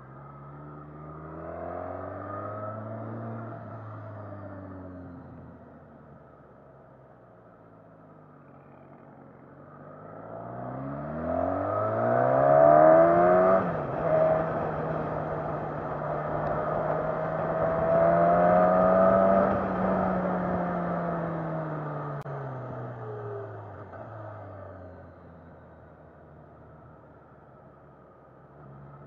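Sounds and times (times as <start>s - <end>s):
wind and road rush: 9.8s - 29.0s
motorcycle engine accelerating: 9.9s - 25.3s.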